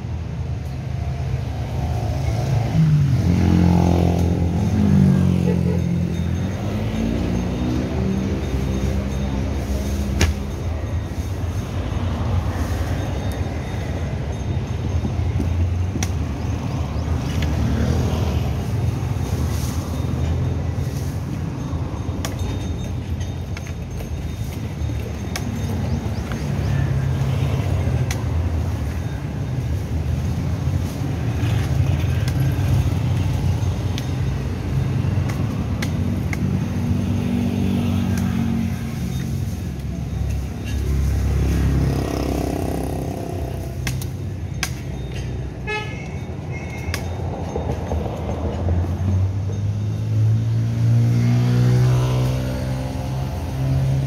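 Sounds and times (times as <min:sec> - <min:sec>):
car and motorcycle engines passing: 0:00.0 - 0:45.1, 0:45.9 - 0:54.0
vehicle horn tooting: 0:45.6 - 0:47.0.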